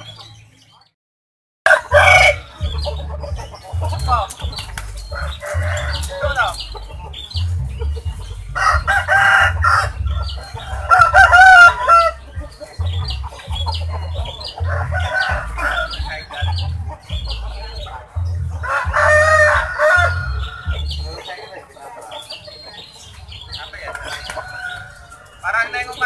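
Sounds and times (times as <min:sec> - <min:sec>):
rooster crowing: 0:01.7 - 0:02.6, 0:08.6 - 0:12.2, 0:14.7 - 0:16.0, 0:18.6 - 0:20.8
chicken clucking: 0:01.7 - 0:26.0.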